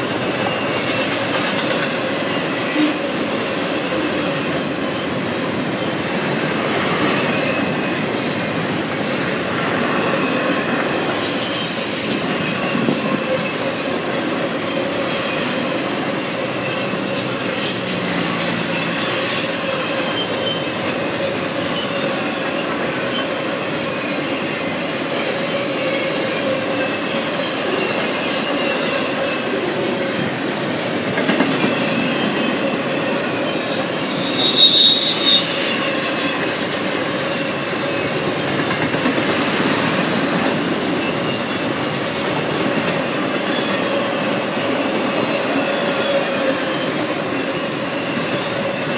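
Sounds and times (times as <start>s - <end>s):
train cars clattering: 0.0s - 48.9s
train wheels rumbling on rail: 0.0s - 48.9s
wheel squealing: 34.1s - 36.5s.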